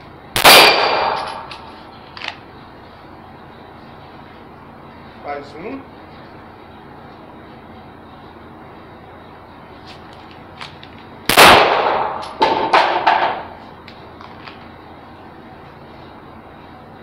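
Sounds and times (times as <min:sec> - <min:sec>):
handgun shots: 0:00.4 - 0:01.6, 0:11.3 - 0:13.4.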